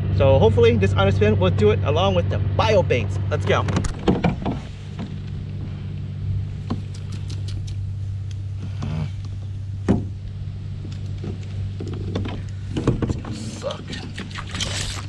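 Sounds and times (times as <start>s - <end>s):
small motor humming: 4.6s - 15.0s
light clicks: 6.6s - 8.4s.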